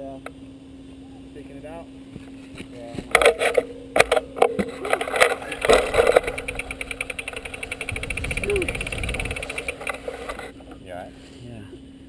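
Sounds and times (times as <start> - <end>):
camera jostling knocks and scrapes: 2.5 - 10.6.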